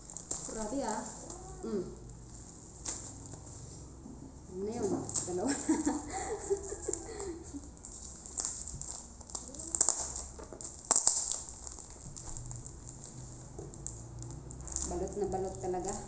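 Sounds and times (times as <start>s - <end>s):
plastic wrapping crinkling: 0.0s - 3.9s, 4.7s - 16.0s.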